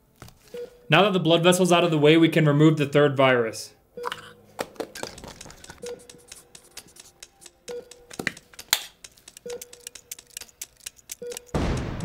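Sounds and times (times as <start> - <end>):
timer beeps: 0.5 - 0.9, 5.7 - 10.2, 11.1 - 11.6
sharp clicks: 5.0 - 12.0.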